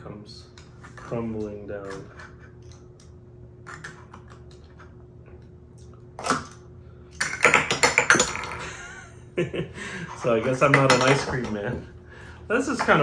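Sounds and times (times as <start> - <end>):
plastic toys clattering on table: 7.2 - 8.7, 10.4 - 11.6.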